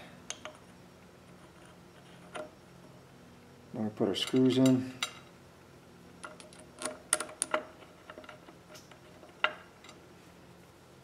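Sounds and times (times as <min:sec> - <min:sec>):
small metal parts clinking: 0:06.2 - 0:10.0.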